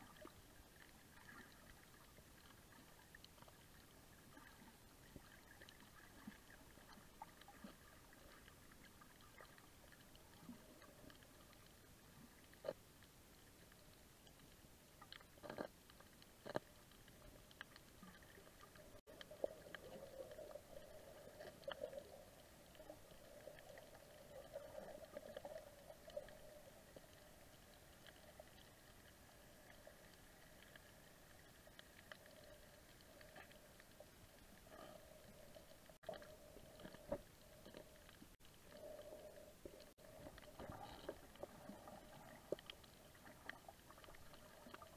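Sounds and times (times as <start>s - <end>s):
low underwater hum: 0.0s - 44.9s.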